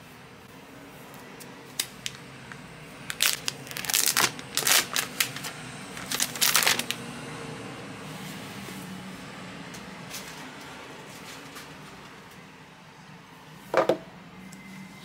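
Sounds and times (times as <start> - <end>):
plastic shrink-wrap crinkling: 3.0 - 7.0.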